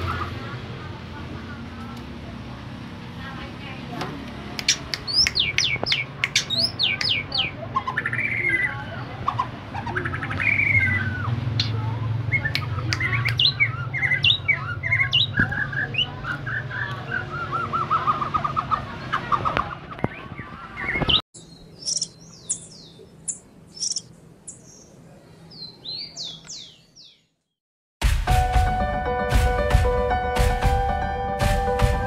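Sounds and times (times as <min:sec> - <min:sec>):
bird singing varied song: 0:04.6 - 0:27.5.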